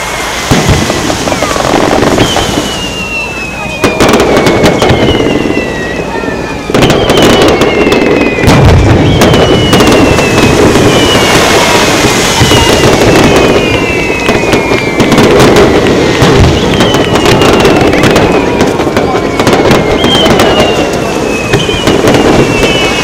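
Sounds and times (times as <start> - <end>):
fireworks bursting: 0.0 - 23.0
fireworks crackling: 0.0 - 23.0
fireworks whistles falling: 0.0 - 23.0.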